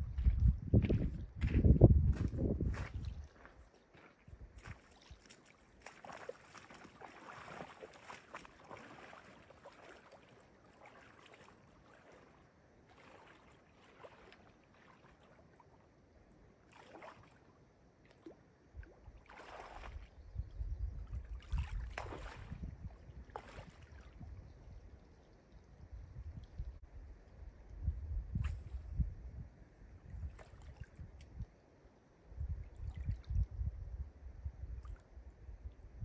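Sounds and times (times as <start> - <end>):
wind buffeting microphone: 0.0 - 3.5, 19.8 - 24.9, 27.7 - 31.5, 32.3 - 36.0
water sloshing and splashing: 4.6 - 16.0, 16.6 - 20.3, 21.0 - 24.5, 30.0 - 31.4.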